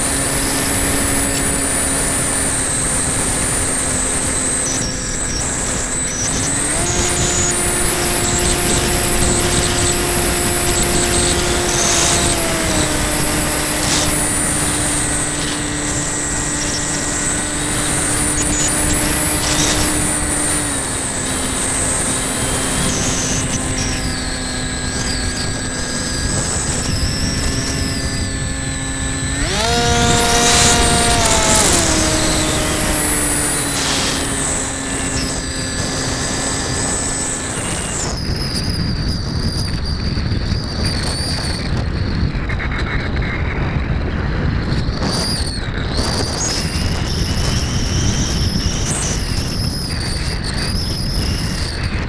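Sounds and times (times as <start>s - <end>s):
model plane motor humming: 0.0s - 52.0s
rushing wind: 0.0s - 52.0s.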